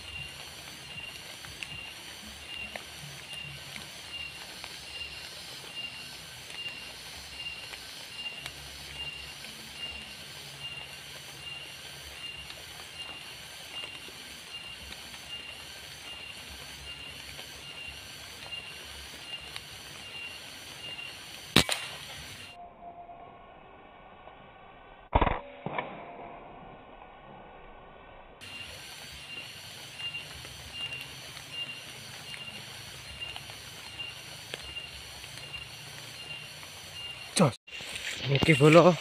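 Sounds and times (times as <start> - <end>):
night insects chirping: 0.0 - 22.6, 28.4 - 39.0
sharp rifle shot: 21.5 - 22.1, 25.1 - 26.4.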